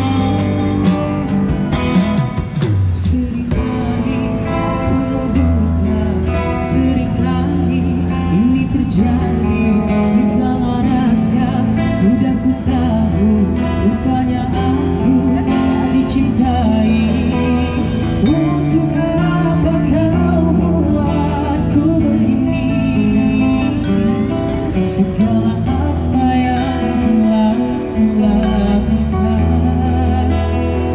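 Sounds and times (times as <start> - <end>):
strummed guitars and bass: 0.0 - 30.9
man singing through microphone: 2.9 - 30.9.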